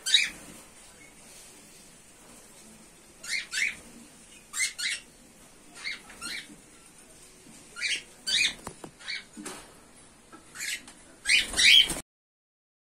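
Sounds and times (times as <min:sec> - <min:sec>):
cockatiels chirping: 0:00.0 - 0:00.4, 0:03.2 - 0:05.1, 0:05.8 - 0:06.6, 0:07.8 - 0:09.4, 0:10.5 - 0:12.0.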